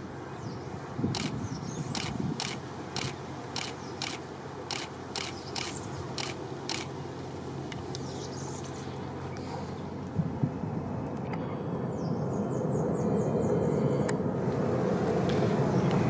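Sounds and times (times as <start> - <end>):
distant jet engine roar: 0.0 - 16.0
sharp clicks: 1.2 - 1.4, 2.0 - 6.9.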